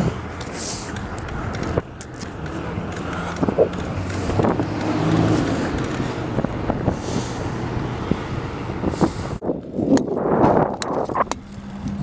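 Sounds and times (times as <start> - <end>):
bike clicks and rattles: 0.0 - 6.3, 9.5 - 12.0
street traffic: 0.0 - 12.0.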